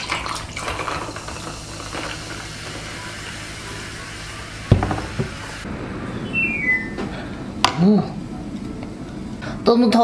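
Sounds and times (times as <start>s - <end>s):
soda fizzing: 0.0s - 5.7s.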